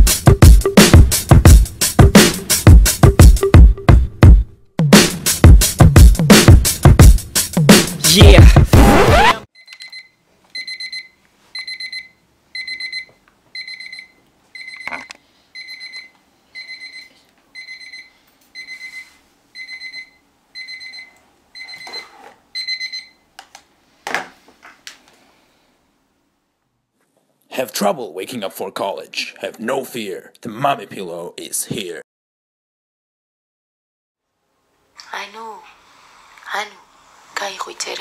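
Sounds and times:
alarm clock beeping: 9.6s - 22.0s, 22.6s - 23.2s.

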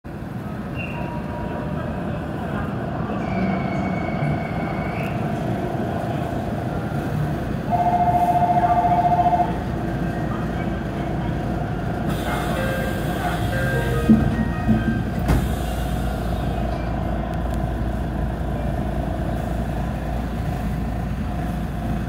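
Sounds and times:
train cab hum: 4.9s - 22.0s.

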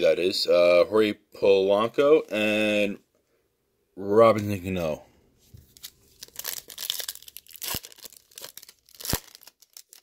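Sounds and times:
foil wrapper tearing and crinkling: 5.7s - 10.0s.

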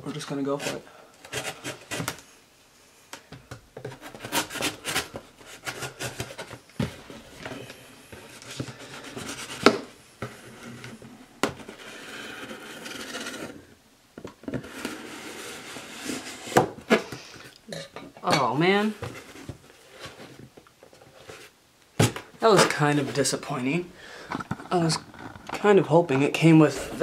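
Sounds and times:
knife scraping through tape: 4.0s - 6.4s, 11.6s - 13.6s.

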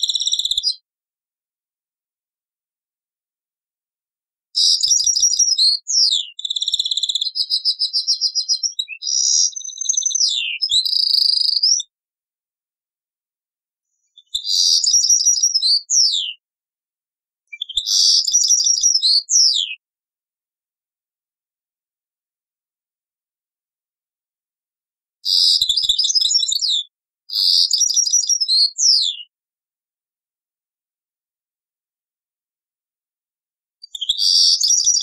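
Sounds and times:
goldfinch singing: 4.6s - 11.8s, 14.2s - 16.4s, 17.6s - 19.8s, 25.2s - 29.3s, 33.9s - 35.0s.

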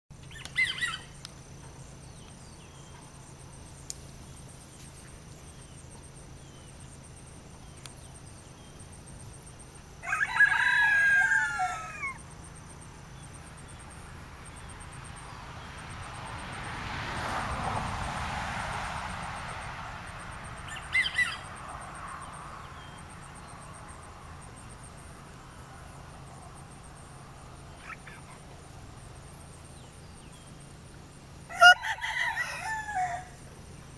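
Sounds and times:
short rooster call: 10.0s - 12.2s, 31.5s - 33.4s
rooster crowing: 10.0s - 12.3s, 31.4s - 33.5s.

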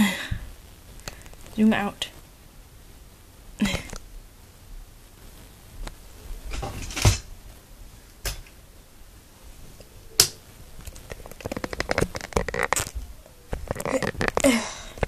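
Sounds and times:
clicks taps and scrapes: 10.2s - 15.0s.

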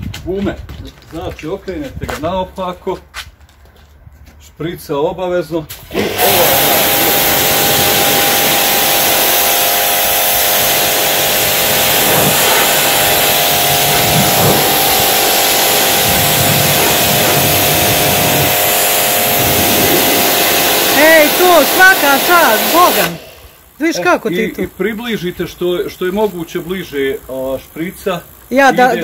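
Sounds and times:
pressure washer whine: 5.7s - 29.0s
water jet hissing: 5.7s - 29.0s.

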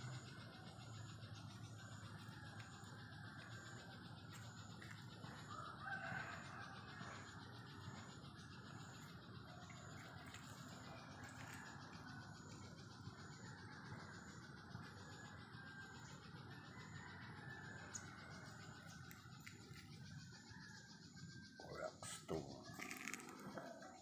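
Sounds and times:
faint rural outdoor ambience: 0.0s - 24.0s
distant rooster crowing: 5.2s - 8.2s, 16.6s - 21.5s.

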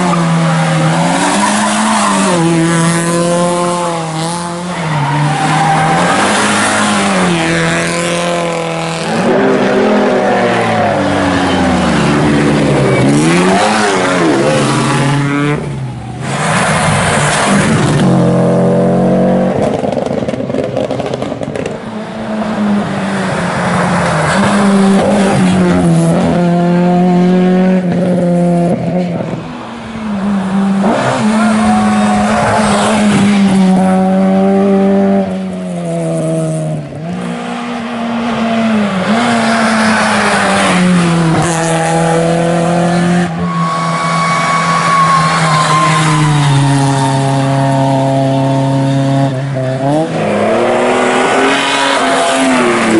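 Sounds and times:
rally car engines revving: 0.0s - 52.9s.

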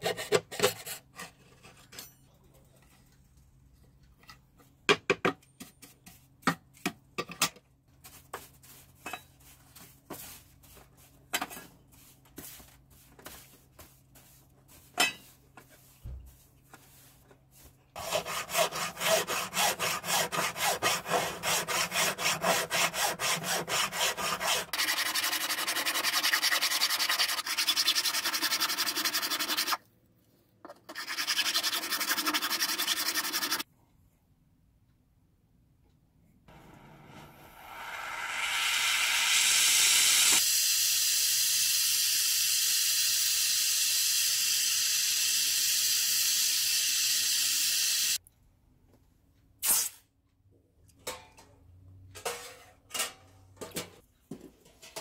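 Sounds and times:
hand file rasping on metal: 18.0s - 29.8s, 30.9s - 33.6s.

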